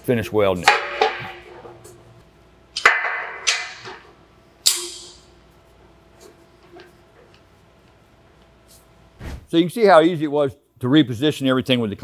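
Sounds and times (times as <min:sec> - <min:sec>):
steel clanking on steel: 0:00.6 - 0:02.0.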